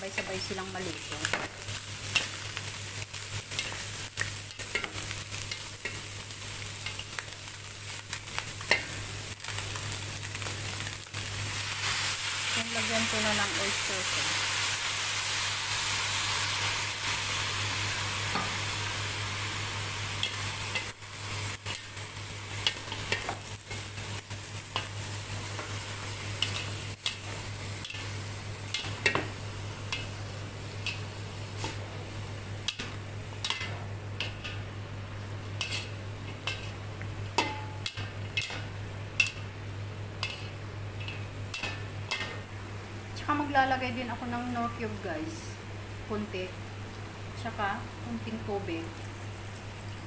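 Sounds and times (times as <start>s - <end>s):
vegetables sizzling in wok: 0.0s - 50.0s
spatula scraping wok: 35.6s - 36.8s, 40.2s - 42.4s.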